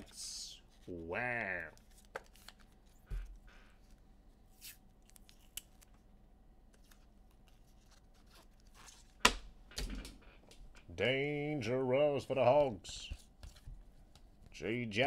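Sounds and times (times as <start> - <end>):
cards rustling: 0.0 - 6.1, 6.7 - 9.2.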